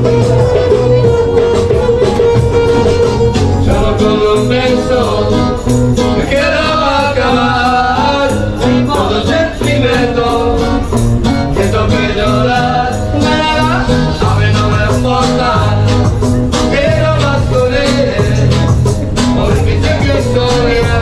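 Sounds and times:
regular beat: 0.0s - 6.4s
bass notes: 0.0s - 21.0s
person singing: 0.0s - 21.0s.

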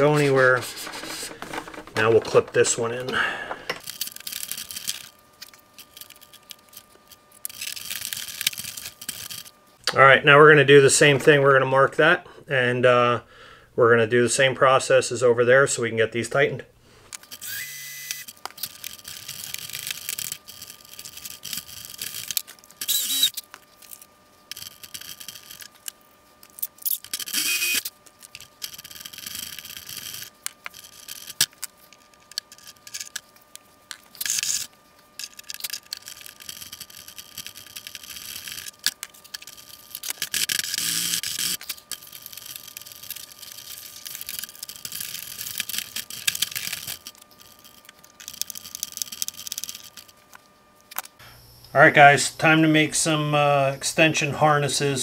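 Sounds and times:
tools scraping and clicking: 0.0s - 9.5s, 17.1s - 50.2s.

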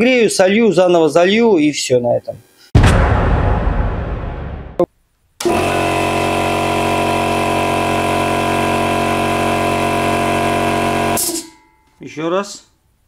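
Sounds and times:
air compressor running: 5.4s - 11.4s.

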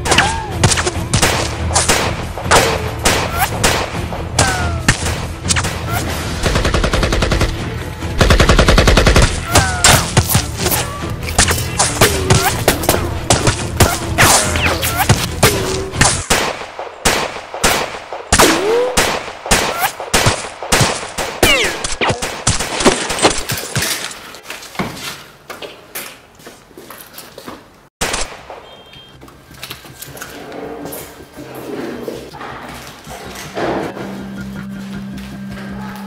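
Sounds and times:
rapid gunfire: 0.6s - 7.6s, 8.2s - 10.5s, 16.0s - 23.2s.

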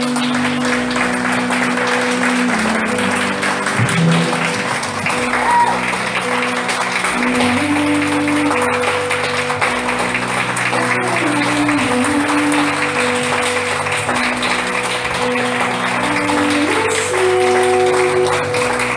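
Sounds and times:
audience applauding: 0.0s - 18.9s
music with sustained notes: 0.0s - 18.9s.

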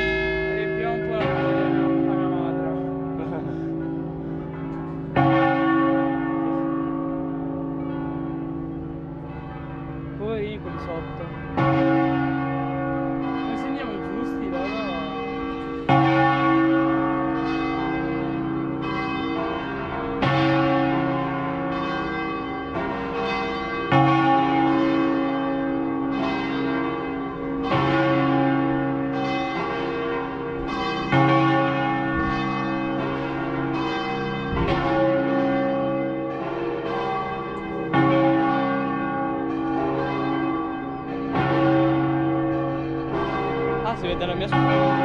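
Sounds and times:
church bells pealing: 0.0s - 45.0s.

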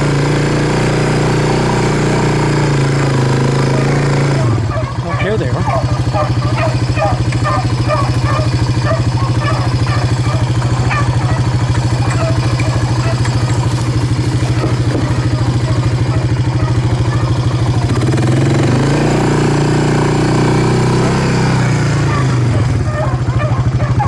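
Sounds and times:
atv engine running: 0.0s - 24.0s
dogs baying: 3.0s - 18.0s, 21.9s - 24.0s.

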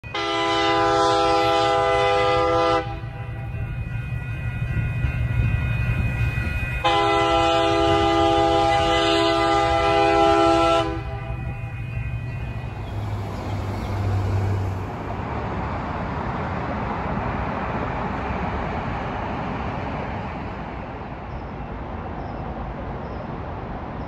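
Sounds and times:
train horn blasts: 0.0s - 3.6s, 6.8s - 14.7s.

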